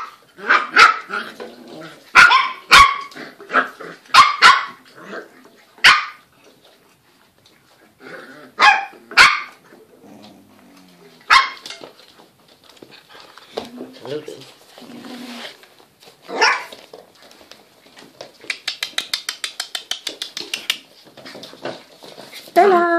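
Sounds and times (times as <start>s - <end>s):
puppies barking: 2.1s - 4.8s, 11.2s - 11.9s.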